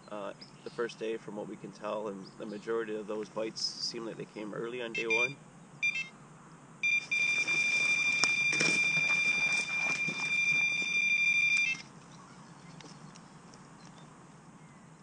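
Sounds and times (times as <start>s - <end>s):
electronic bite alarm tone: 5.0s - 6.2s, 6.8s - 11.8s
footsteps through grass: 7.0s - 11.8s.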